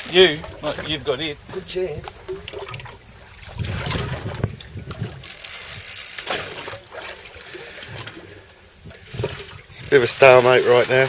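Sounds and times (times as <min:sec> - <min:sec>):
wind buffeting microphone: 0:00.1 - 0:05.9, 0:07.8 - 0:09.9.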